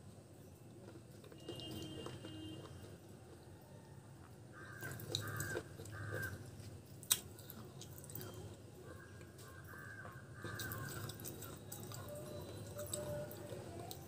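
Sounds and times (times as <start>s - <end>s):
person chewing crunchy clay: 0.8s - 14.0s
crows cawing: 4.5s - 6.5s, 8.9s - 11.2s.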